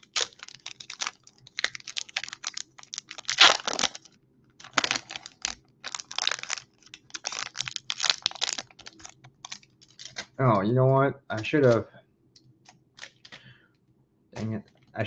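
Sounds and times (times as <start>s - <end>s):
foil wrapper crinkling: 0.0s - 10.4s, 13.0s - 13.4s.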